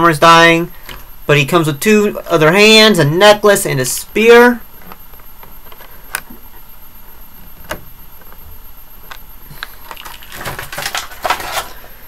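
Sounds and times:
plastic clicks and rustles: 9.1s - 11.8s.

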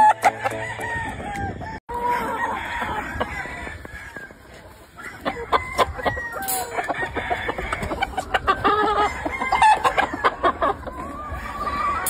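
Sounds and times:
chickens clucking: 0.0s - 12.0s
rooster crowing: 0.2s - 4.3s, 5.0s - 8.0s.

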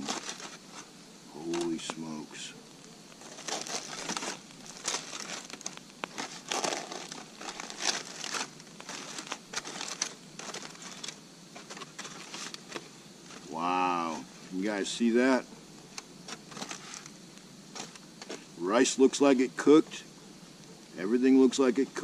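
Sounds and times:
aluminium foil crinkling: 0.0s - 1.9s, 2.7s - 14.2s, 15.8s - 18.5s.

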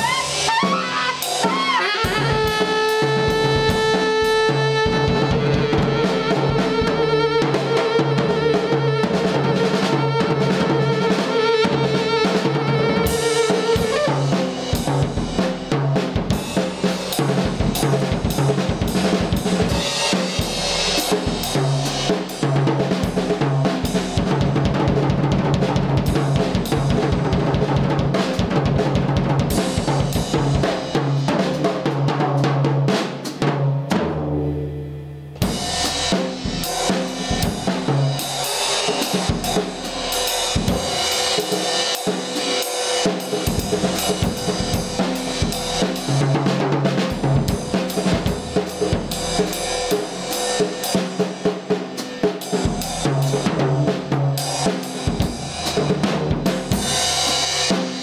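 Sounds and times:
saxophone long note: 0.0s - 14.6s
drum kit played busily: 0.0s - 58.0s.

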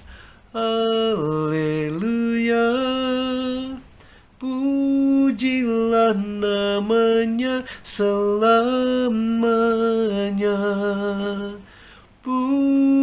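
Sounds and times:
man singing unaccompanied: 0.5s - 13.0s.

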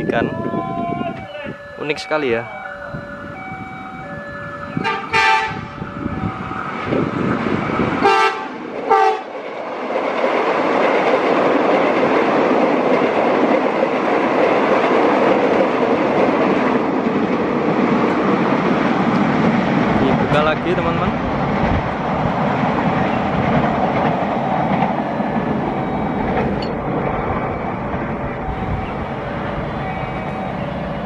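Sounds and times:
level crossing siren: 0.0s - 7.2s, 25.1s - 26.6s, 28.2s - 31.0s
train wheels rushing on rails: 0.0s - 31.0s
train horn blasts: 4.8s - 5.7s, 8.0s - 9.3s.

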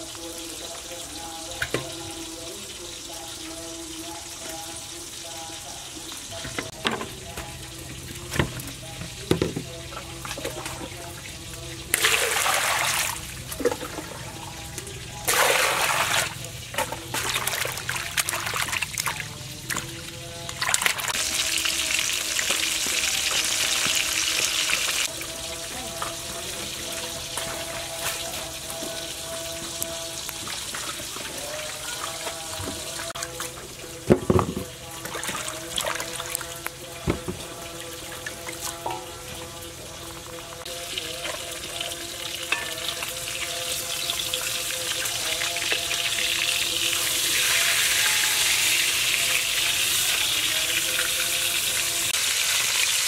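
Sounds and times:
water splashing and dripping: 6.0s - 47.0s
water rushing into a steel bowl: 11.9s - 14.2s, 15.3s - 19.8s.

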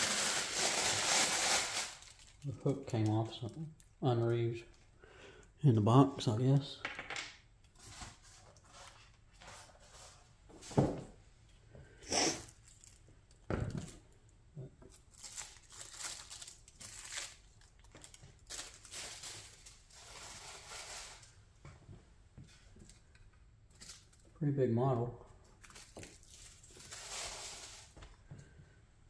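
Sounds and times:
packaging crinkling and rustling: 0.0s - 4.4s, 12.5s - 13.1s, 14.9s - 21.3s, 25.6s - 28.2s.

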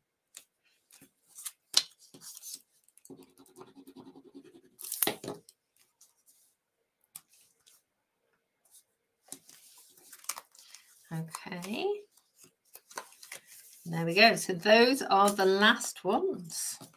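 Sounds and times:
paper rustling: 8.7s - 13.9s.

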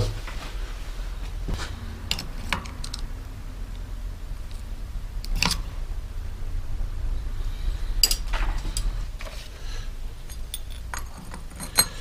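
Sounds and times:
low steady hum: 0.0s - 12.0s
steel tools scraping on metal: 10.3s - 12.0s.

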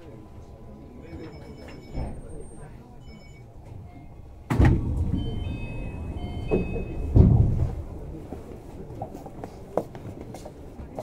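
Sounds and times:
train rumbling: 3.6s - 11.0s
short high tones: 5.1s - 7.2s
heavy low thump: 6.0s - 8.2s.

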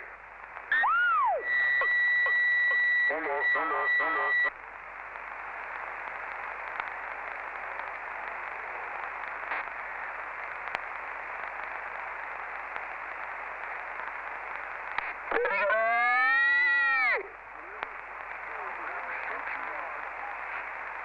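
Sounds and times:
radio static hiss: 0.0s - 21.0s
loud pitched radio tone: 0.7s - 4.5s.

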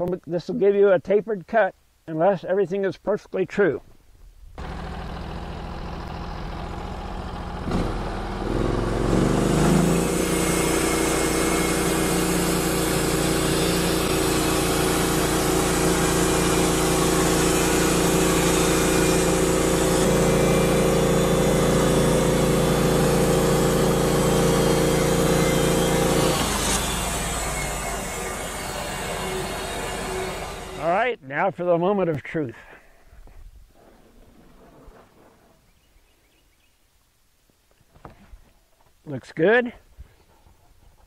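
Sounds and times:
sawmill engine revving: 4.6s - 31.0s
band saw blade cutting wood: 7.7s - 30.9s.

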